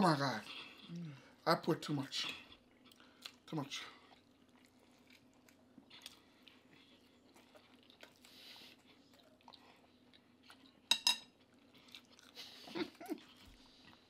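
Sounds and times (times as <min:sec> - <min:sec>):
people chewing: 0:00.2 - 0:01.4, 0:02.0 - 0:14.0
cutlery clinking on a plate: 0:10.9 - 0:11.3.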